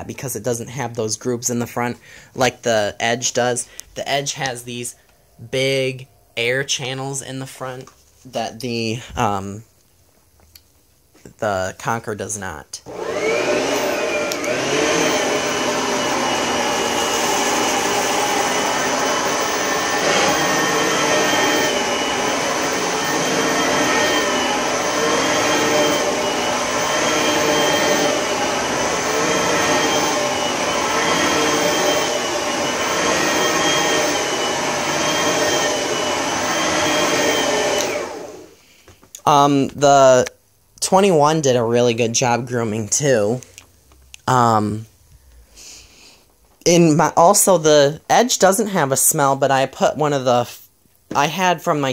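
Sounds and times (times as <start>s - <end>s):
vacuum cleaner running: 12.9s - 38.6s.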